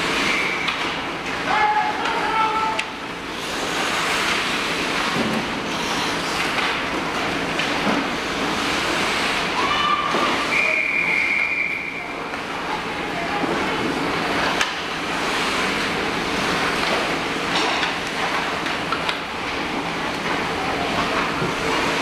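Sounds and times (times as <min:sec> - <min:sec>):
person calling out: 0:01.5 - 0:02.9
skate blades scraping ice: 0:03.3 - 0:06.7.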